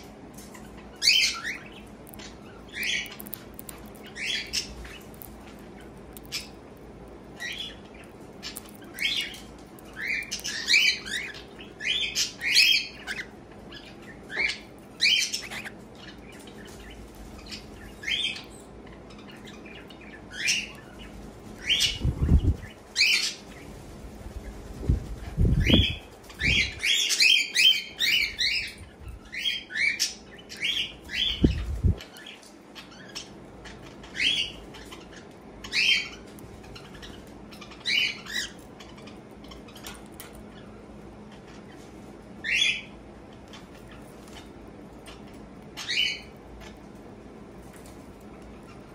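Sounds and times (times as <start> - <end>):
bird cracking seeds: 1.9 - 7.4, 8.0 - 10.8.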